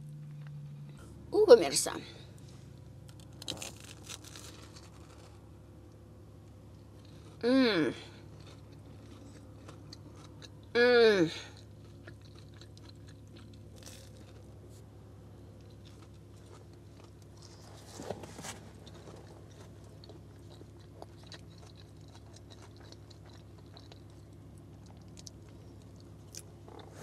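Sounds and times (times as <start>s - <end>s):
steady low hum: 0.0s - 27.0s
crunching noise: 3.1s - 5.4s
person chewing food: 3.1s - 7.4s, 8.0s - 10.7s, 11.4s - 27.0s.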